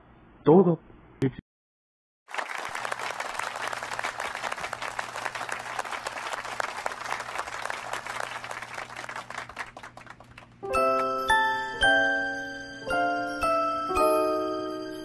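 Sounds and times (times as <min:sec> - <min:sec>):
crowd applause: 0:02.3 - 0:11.5.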